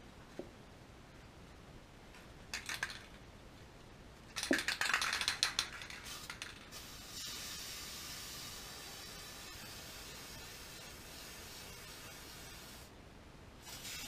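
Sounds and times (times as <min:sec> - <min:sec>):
spray can rattling: 0:02.5 - 0:03.2, 0:04.3 - 0:12.8, 0:13.6 - 0:14.0.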